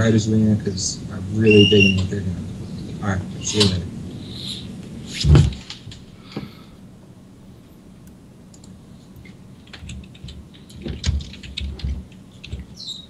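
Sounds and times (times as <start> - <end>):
low bumps: 0.0 - 6.5
keyboard and mouse clicks: 8.5 - 13.0.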